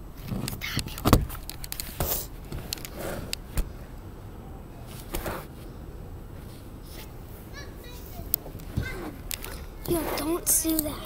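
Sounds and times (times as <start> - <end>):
microphone rubbing on clothing: 8.7 - 10.5.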